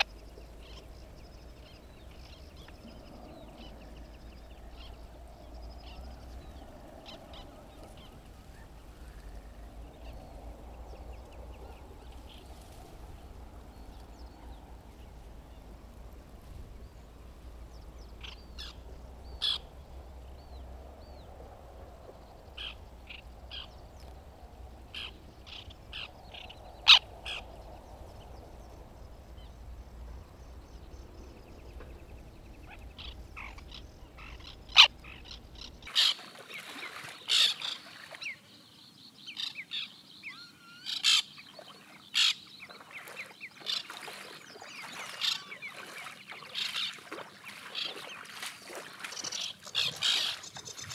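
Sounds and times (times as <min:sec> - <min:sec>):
low wind rumble: 0:00.0 - 0:36.0
terns calling: 0:00.0 - 0:50.9.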